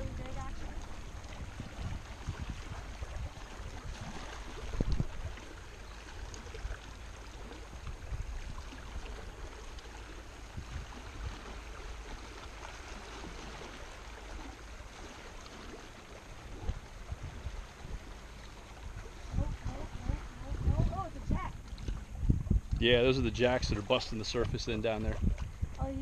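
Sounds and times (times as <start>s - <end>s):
waves lapping against rocks: 0.0s - 26.0s.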